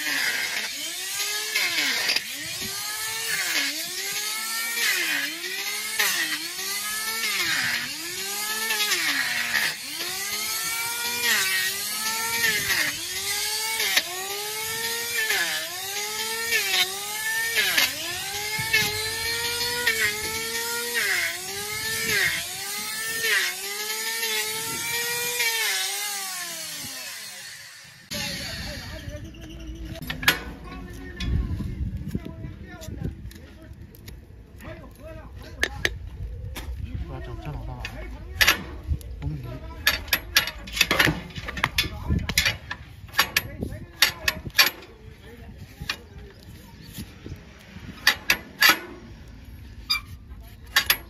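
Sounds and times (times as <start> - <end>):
electric chainsaw cutting hoof: 0.0 - 29.1, 47.0 - 51.0.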